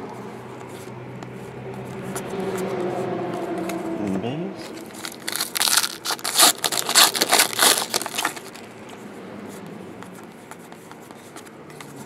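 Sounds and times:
foil wrapper tearing and crinkling: 0:04.7 - 0:08.6.

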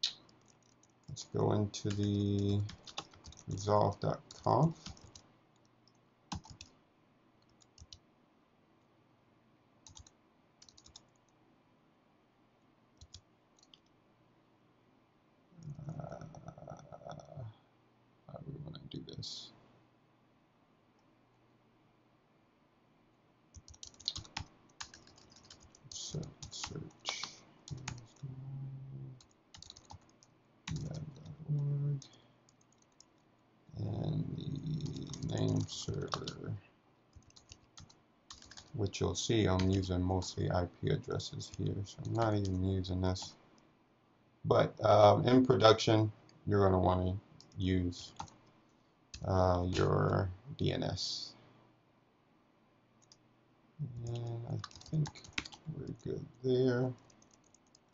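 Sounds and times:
computer keyboard keystrokes: 0:01.8 - 0:03.6, 0:04.2 - 0:05.2, 0:05.9 - 0:06.7, 0:07.5 - 0:08.0, 0:09.8 - 0:11.2, 0:13.0 - 0:13.9, 0:23.5 - 0:28.2, 0:29.2 - 0:31.0, 0:34.7 - 0:36.4, 0:37.1 - 0:38.8, 0:39.5 - 0:39.8, 0:47.4 - 0:48.4, 0:54.0 - 0:56.0, 0:57.0 - 0:57.8
low voiced hum: 0:03.5 - 0:05.0, 0:15.6 - 0:17.6, 0:25.9 - 0:29.2, 0:30.7 - 0:32.2, 0:33.8 - 0:36.6, 0:38.8 - 0:43.4, 0:44.5 - 0:48.2, 0:49.2 - 0:51.4, 0:53.8 - 0:57.0.

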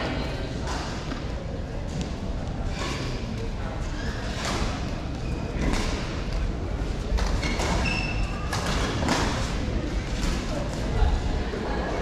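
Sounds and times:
shoe squeaks on court floor: 0:07.4 - 0:08.6.

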